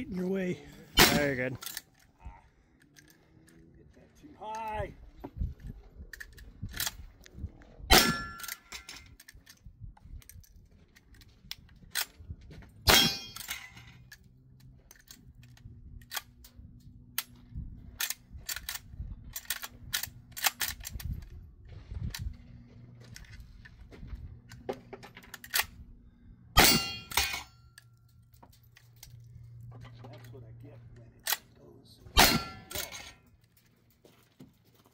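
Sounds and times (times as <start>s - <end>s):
shotgun shots: 7.9s - 8.3s, 12.9s - 13.4s, 32.2s - 33.0s
gun being reloaded clicks: 13.4s - 16.5s, 18.0s - 21.2s, 25.2s - 25.8s.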